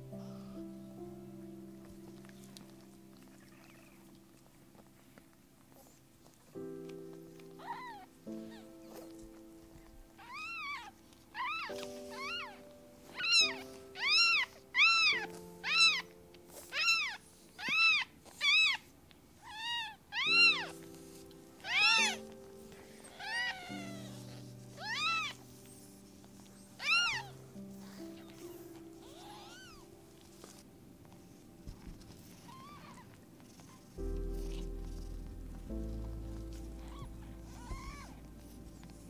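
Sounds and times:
soft background music: 0:00.0 - 0:39.0
cat meowing: 0:07.6 - 0:08.7, 0:10.2 - 0:16.1, 0:16.7 - 0:18.8, 0:19.4 - 0:20.8, 0:21.6 - 0:22.2, 0:23.1 - 0:25.4, 0:26.8 - 0:28.4, 0:29.0 - 0:30.6, 0:32.4 - 0:33.7, 0:36.8 - 0:38.2.

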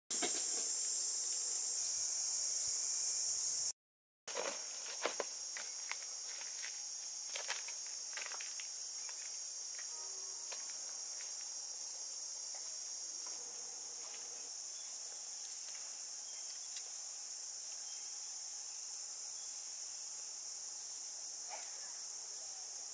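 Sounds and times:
insects droning: 0:00.1 - 0:03.7, 0:04.3 - 0:22.9
footsteps on dry ground: 0:04.3 - 0:09.9.

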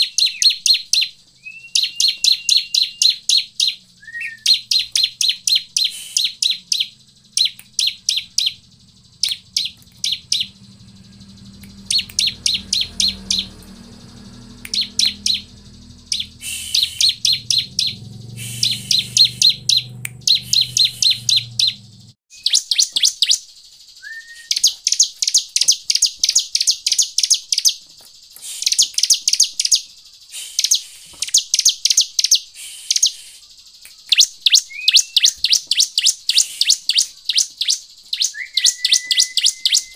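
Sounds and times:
bird calling sharp chip notes: 0:00.0 - 0:21.8, 0:30.4 - 0:39.9
low steady hum: 0:06.8 - 0:22.2.

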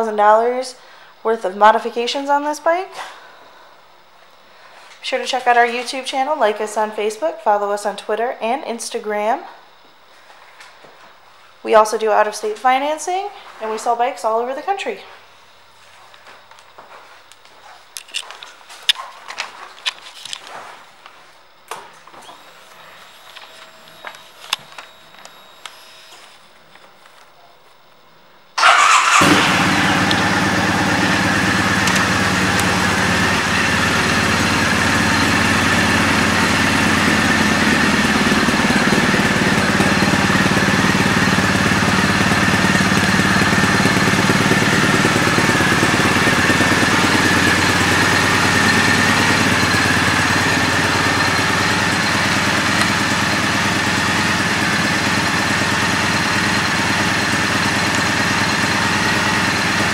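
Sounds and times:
motorcycle engine starting and idling: 0:28.6 - 0:59.9.

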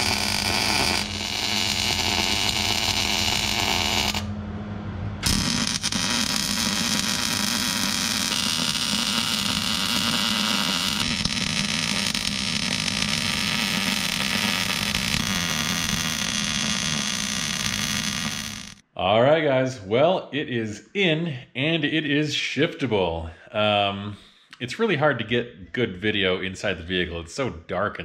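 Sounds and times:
welder arc crackling and hissing: 0:00.0 - 0:04.3, 0:05.2 - 0:18.8.

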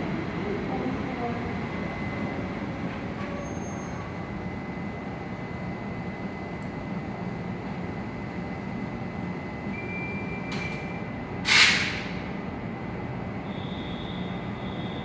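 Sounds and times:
train rumbling: 0:00.0 - 0:04.5
air brake hiss: 0:11.4 - 0:12.0.

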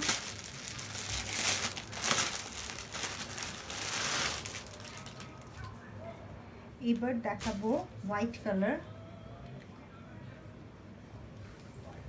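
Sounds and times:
cloth rustling: 0:00.0 - 0:05.4
plastic packaging crinkling: 0:00.0 - 0:05.7, 0:07.3 - 0:07.9.

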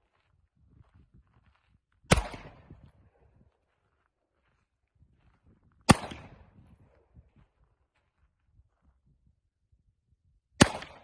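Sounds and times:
pistol shots with echo: 0:02.1 - 0:02.8, 0:05.9 - 0:06.6, 0:10.6 - 0:11.0.

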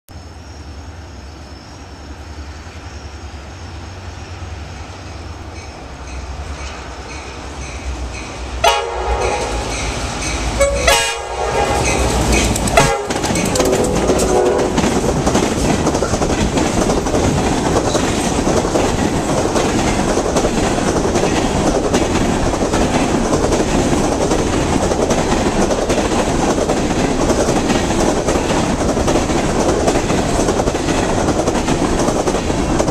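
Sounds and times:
diesel locomotive rumble: 0:00.1 - 0:32.9
wheels clattering on rail: 0:05.5 - 0:32.9
train air horn blasts: 0:08.6 - 0:14.9.

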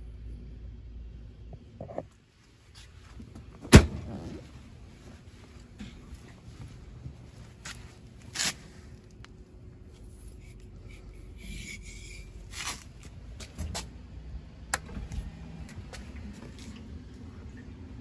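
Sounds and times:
hand rubbing handling noise: 0:01.8 - 0:13.9.

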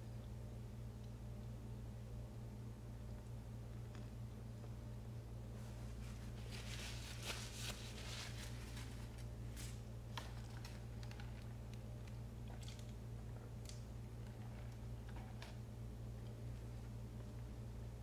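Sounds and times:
low electrical hum: 0:00.0 - 0:18.0
paper napkin rustling: 0:05.6 - 0:10.8.

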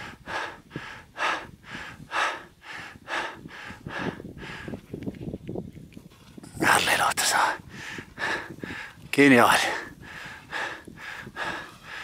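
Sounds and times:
person panting hard: 0:00.0 - 0:04.8, 0:07.5 - 0:09.0, 0:09.6 - 0:12.0.

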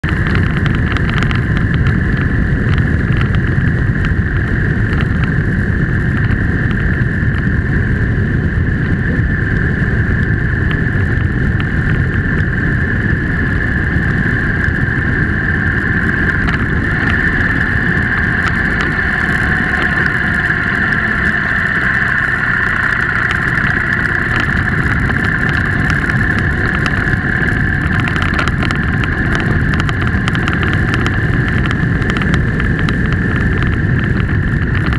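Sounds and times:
motorcycle engine drone: 0:00.0 - 0:34.9
steady high whine: 0:00.0 - 0:34.9
wind rush: 0:00.0 - 0:34.9.

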